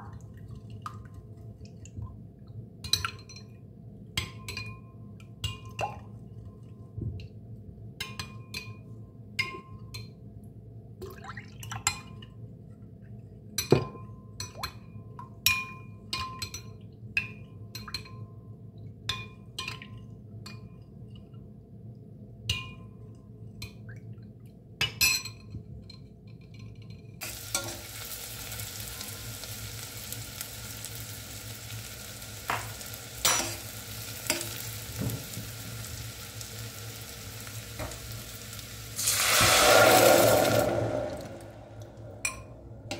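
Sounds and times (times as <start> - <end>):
onions and nuts sizzling: 27.2 - 42.3.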